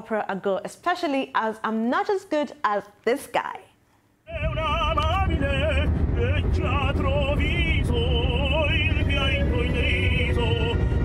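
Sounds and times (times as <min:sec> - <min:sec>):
car road noise: 0:04.3 - 0:10.7
man singing opera: 0:04.3 - 0:11.0.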